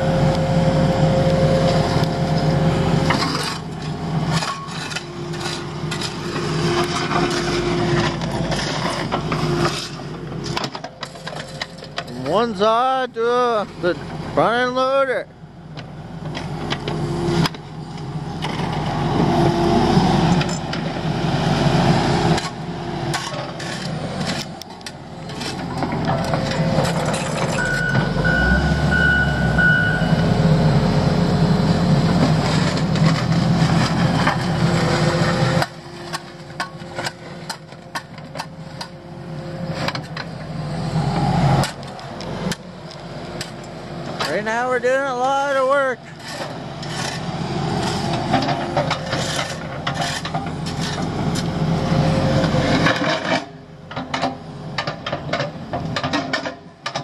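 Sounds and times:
diesel engines under load: 0.0 - 57.0
sharp knocks and scrapes: 3.0 - 12.4, 22.3 - 28.1, 46.1 - 51.5, 52.4 - 57.0
backup alarm beeping: 27.6 - 30.3.

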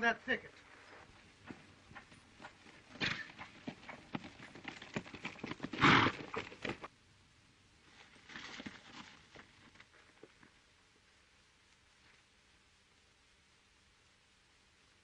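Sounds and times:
hooves on dry dirt: 0.5 - 6.9, 7.8 - 10.7
running footsteps scuffing on dirt: 0.6 - 6.9, 7.9 - 10.6.

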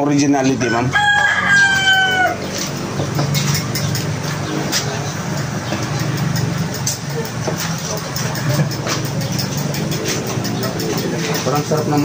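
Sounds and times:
rooster crowing: 0.6 - 2.8.

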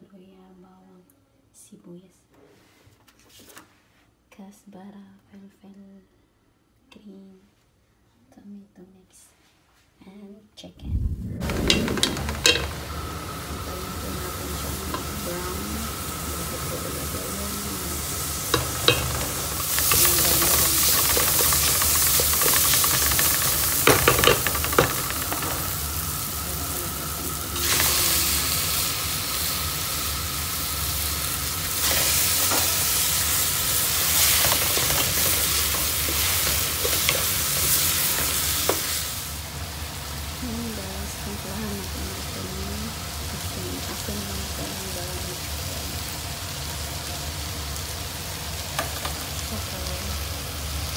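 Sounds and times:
wooden spoon stirring pot: 11.4 - 28.5, 33.5 - 38.9
vegetables sizzling in oil: 11.4 - 50.9.

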